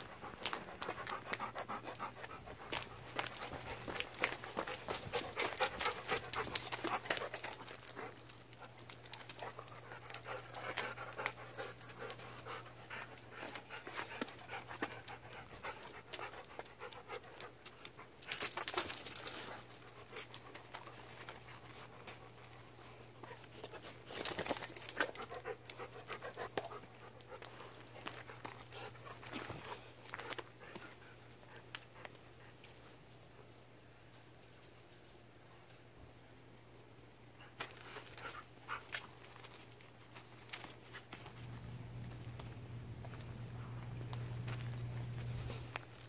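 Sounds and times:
dog panting: 0.0 - 32.6.

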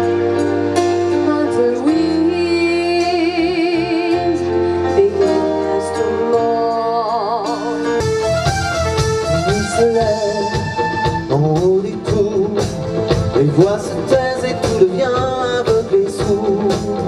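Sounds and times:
drums: 0.0 - 17.0
electric guitar: 0.0 - 17.0
woman singing: 1.2 - 8.0.

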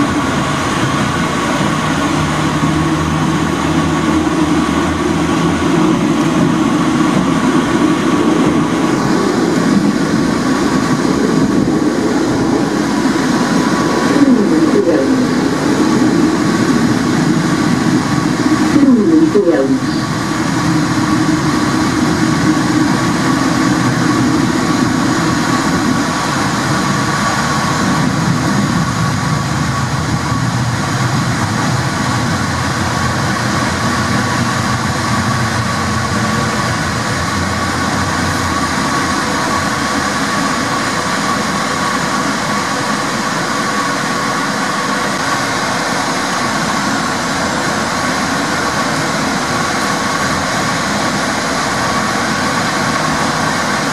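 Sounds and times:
low hum falling in pitch: 0.0 - 41.8
constant whine: 0.0 - 53.9
tram wheels rumbling on rail: 0.0 - 53.9.

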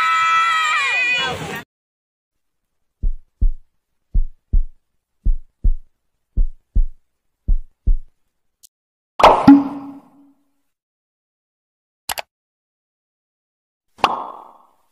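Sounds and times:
heartbeat thumps: 3.0 - 8.1.

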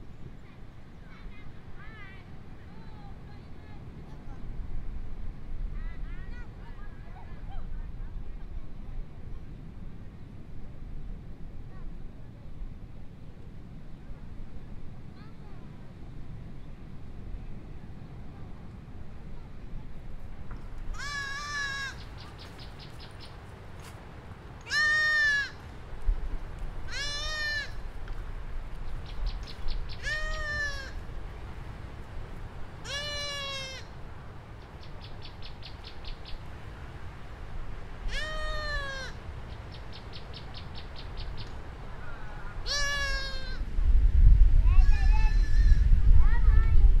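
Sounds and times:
goat bleating: 20.9 - 22.0, 24.7 - 25.6, 26.9 - 27.8, 30.0 - 31.0, 32.8 - 33.9, 38.1 - 39.2, 42.6 - 43.6.

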